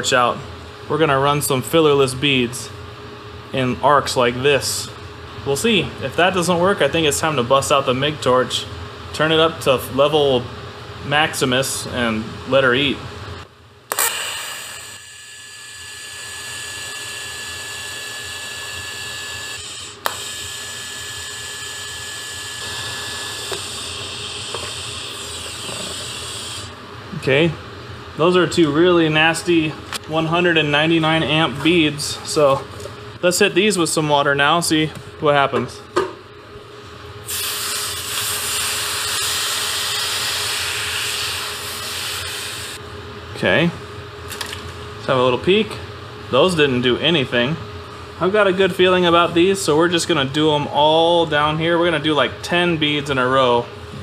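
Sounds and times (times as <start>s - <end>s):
welding arc starting crack: 13.9s - 15.0s, 37.3s - 39.4s
welding arc buzzing hiss: 13.9s - 26.8s, 37.2s - 42.8s.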